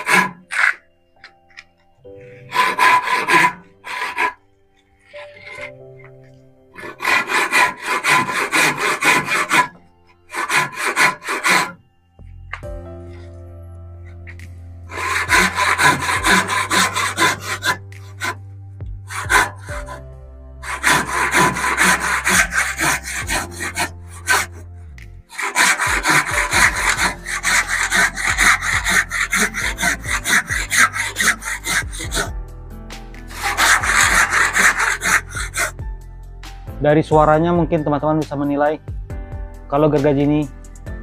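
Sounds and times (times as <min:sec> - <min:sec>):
hand saw cutting hardwood: 0:00.0 - 0:01.4, 0:02.4 - 0:04.4, 0:05.1 - 0:05.7, 0:06.8 - 0:11.8, 0:14.9 - 0:18.4, 0:19.1 - 0:20.0, 0:20.6 - 0:24.7, 0:25.3 - 0:32.3, 0:33.2 - 0:35.8.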